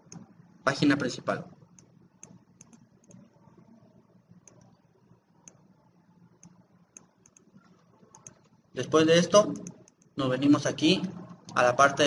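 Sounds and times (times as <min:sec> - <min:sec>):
computer mouse clicks: 0:00.0 - 0:00.4, 0:01.7 - 0:08.6, 0:09.4 - 0:10.2.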